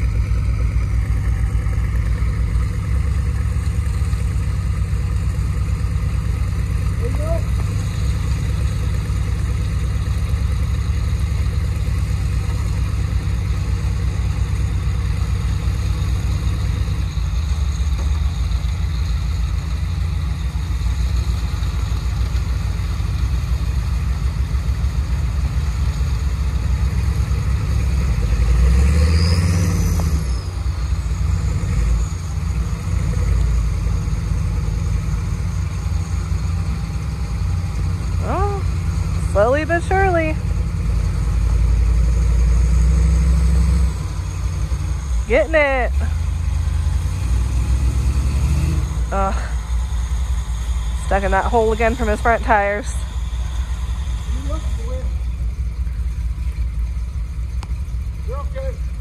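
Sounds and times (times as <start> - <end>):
engine revving with whine: 0.0 - 59.0
truck engines running: 0.0 - 59.0.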